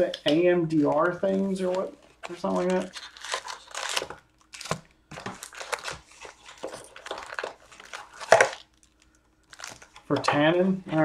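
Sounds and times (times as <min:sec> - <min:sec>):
cardboard and wrappers tearing: 0:01.4 - 0:10.1.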